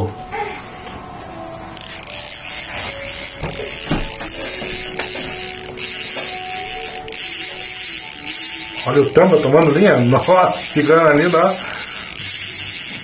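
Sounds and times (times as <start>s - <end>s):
fishing reel drag buzzing: 1.7s - 13.0s.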